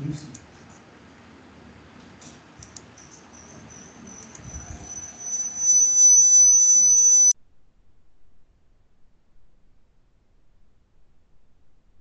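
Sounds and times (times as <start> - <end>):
faint room noise: 0.0 - 12.0
high-pitched whistling tone: 3.1 - 7.4.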